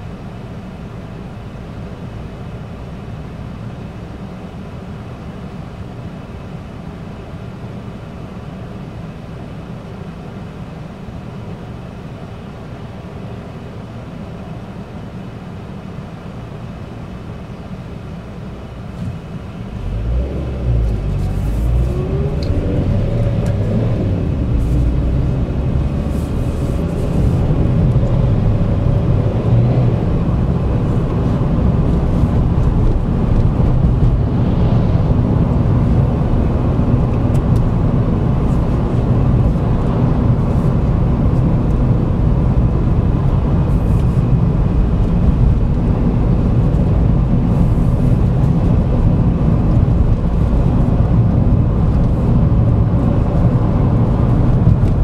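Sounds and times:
car engine: 0:00.0 - 0:55.0
road noise: 0:00.0 - 0:55.0.

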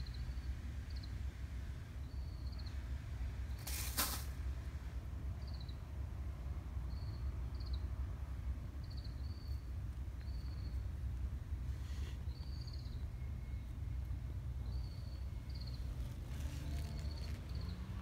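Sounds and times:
brief hiss: 0:03.6 - 0:04.4.

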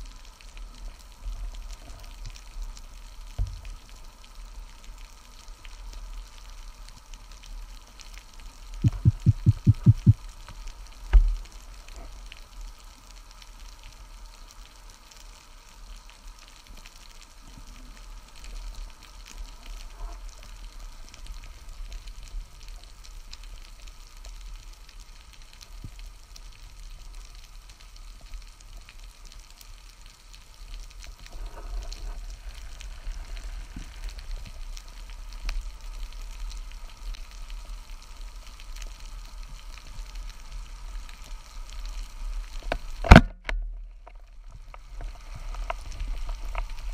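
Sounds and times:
underwater crackling and hiss: 0:00.0 - 0:46.9
low underwater rumble: 0:08.8 - 0:10.2.

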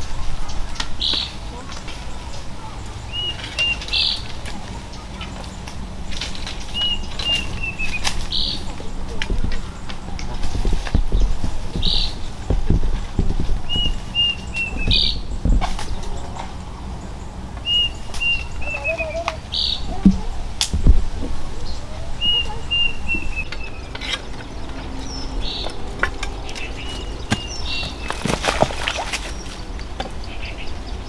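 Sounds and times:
rustling: 0:00.0 - 0:30.2
songbird singing: 0:00.0 - 0:31.0
bird high call: 0:00.4 - 0:10.2, 0:11.0 - 0:20.2, 0:21.6 - 0:28.2
sharp knocks: 0:06.2 - 0:16.6, 0:19.9 - 0:21.4, 0:25.6 - 0:29.2.

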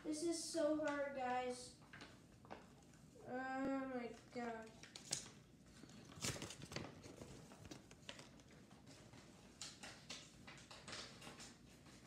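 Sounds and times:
hands rustling and tapping cards: 0:03.6 - 0:12.0.

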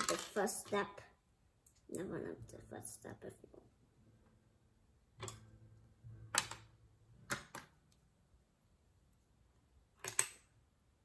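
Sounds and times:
plastic bricks clicking together: 0:00.0 - 0:00.4, 0:10.0 - 0:10.4.

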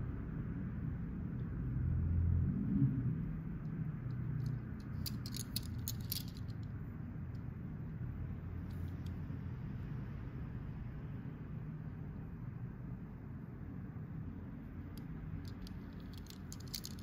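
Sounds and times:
low steady hum: 0:00.0 - 0:17.0
toy car handling clicks: 0:04.4 - 0:06.6, 0:15.0 - 0:17.0.

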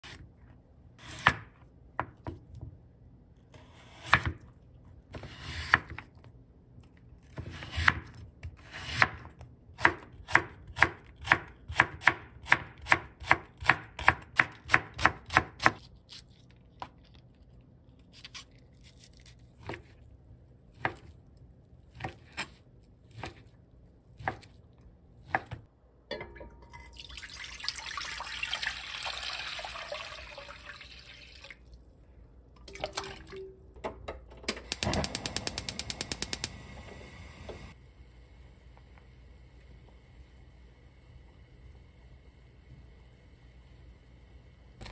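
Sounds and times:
knife chopping on cutting board: 0:21.9 - 0:23.5, 0:24.2 - 0:24.5, 0:25.2 - 0:25.7
liquid pouring into a pot: 0:26.4 - 0:31.8, 0:32.6 - 0:33.5.

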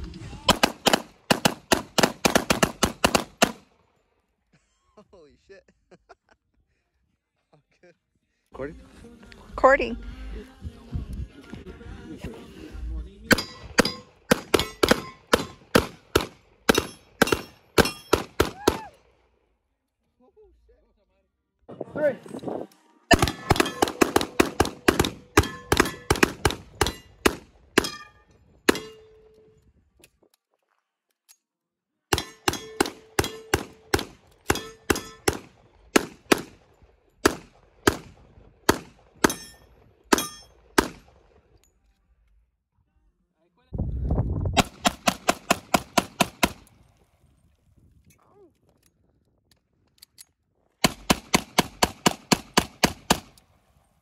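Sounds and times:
pistol shots: 0:00.5 - 0:03.7, 0:13.3 - 0:18.8, 0:23.1 - 0:29.0, 0:32.1 - 0:41.3, 0:44.6 - 0:46.7, 0:50.8 - 0:53.4.

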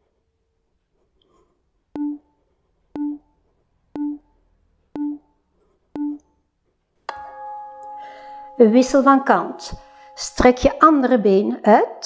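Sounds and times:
short electronic beeps: 0:03.0 - 0:03.2, 0:04.0 - 0:04.2, 0:05.0 - 0:05.2.

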